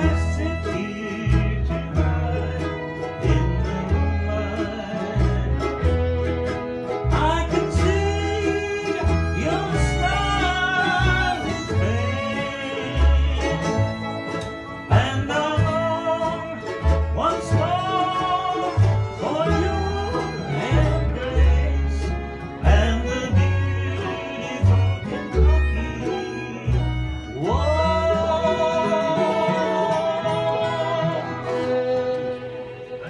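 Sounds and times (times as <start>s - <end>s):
bluegrass string band playing: 0.0s - 33.0s
steady bass line: 0.0s - 33.0s
person singing lead: 14.9s - 33.0s.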